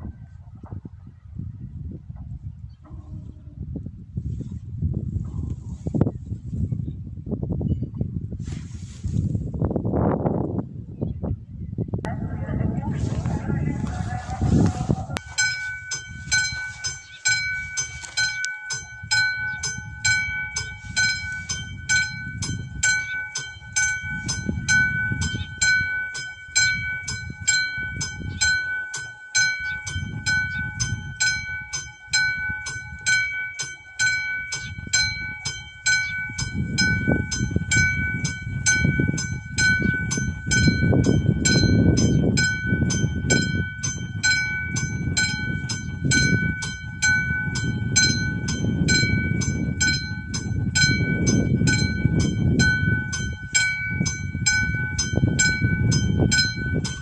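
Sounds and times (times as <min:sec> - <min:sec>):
low rumble: 0:11.8 - 0:17.8
level crossing electric bell: 0:15.2 - 0:57.0.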